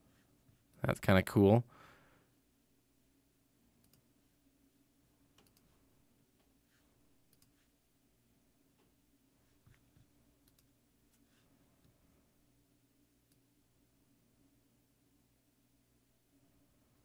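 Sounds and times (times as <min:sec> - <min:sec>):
computer mouse clicks: 0:03.8 - 0:04.1, 0:05.3 - 0:05.8, 0:07.3 - 0:07.6, 0:10.4 - 0:10.8.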